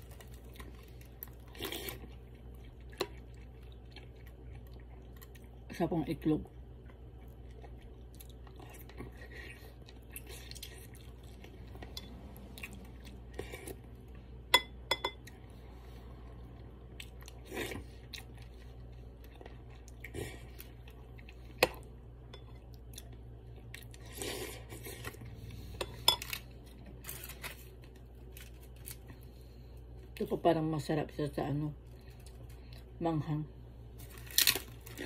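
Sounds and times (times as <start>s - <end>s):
chewing and sipping: 0.0s - 5.7s, 6.7s - 14.4s
spoon clinking against bowl: 14.5s - 15.2s.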